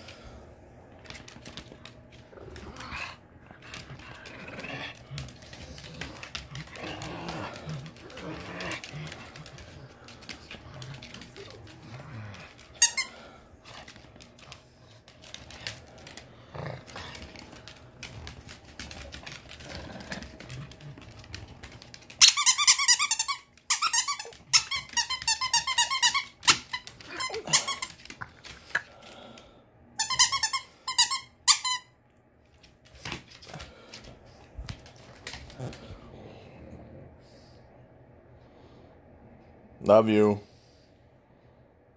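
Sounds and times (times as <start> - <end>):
squeaky toy squeaking: 22.2 - 26.6, 30.0 - 31.9.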